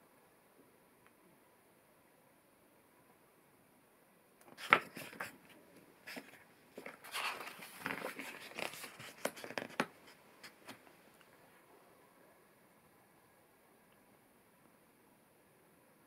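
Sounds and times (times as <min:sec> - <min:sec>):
paper pages turning: 0:04.4 - 0:05.4, 0:06.0 - 0:10.8.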